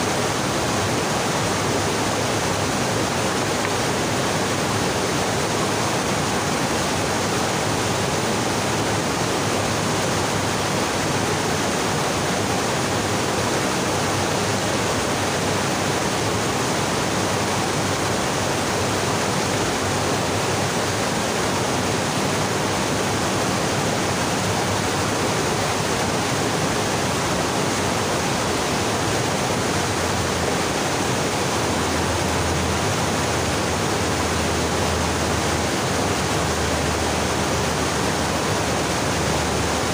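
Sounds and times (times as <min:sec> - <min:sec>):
stream rushing over boulders: 0:00.0 - 0:39.9.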